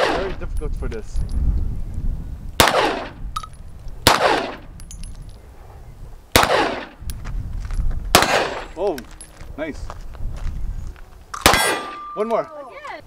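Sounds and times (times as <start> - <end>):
handgun shots with echo: 2.6 - 3.2, 4.0 - 4.6, 6.4 - 7.0, 8.1 - 8.7, 11.4 - 12.4.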